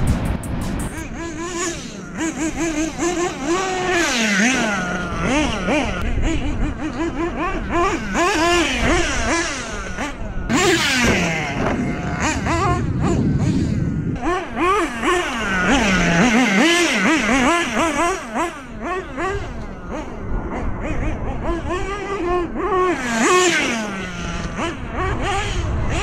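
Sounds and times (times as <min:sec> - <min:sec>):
toy truck motor revving: 0:01.2 - 0:13.2, 0:14.2 - 0:26.0.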